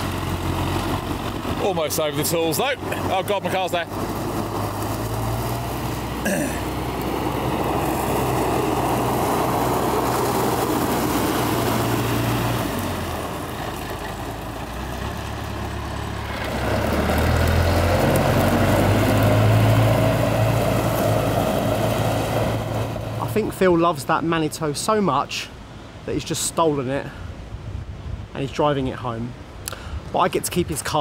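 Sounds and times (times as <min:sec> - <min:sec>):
diesel engine running: 0:00.0 - 0:23.6.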